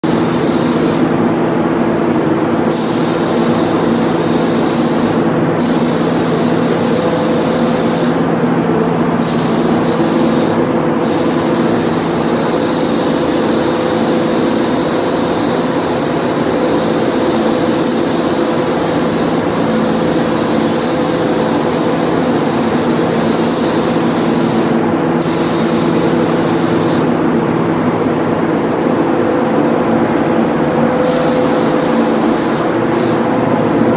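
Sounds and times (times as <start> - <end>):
paint spray gun hissing: 0.0 - 1.1, 2.7 - 8.3, 9.2 - 27.1, 31.0 - 33.3
steady low hum: 0.0 - 33.9.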